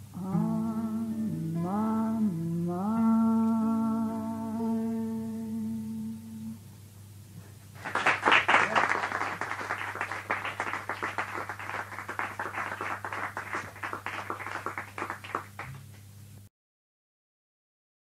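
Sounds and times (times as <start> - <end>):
steady low hum: 0.0 - 16.5
audience applauding: 7.8 - 16.0.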